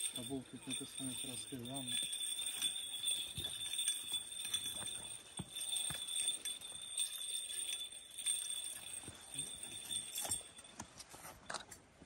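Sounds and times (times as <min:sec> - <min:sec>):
censer chains and bells clinking: 0:00.0 - 0:11.0.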